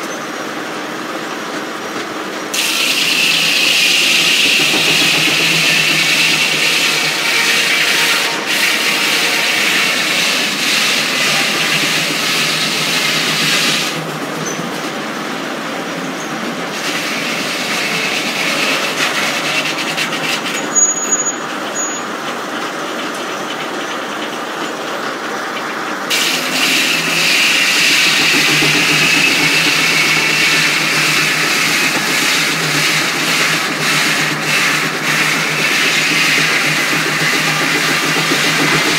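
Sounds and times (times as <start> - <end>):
circular sawmill blade whining: 2.5 - 15.1, 16.0 - 22.2, 26.0 - 38.9
machine rattle: 26.1 - 38.9.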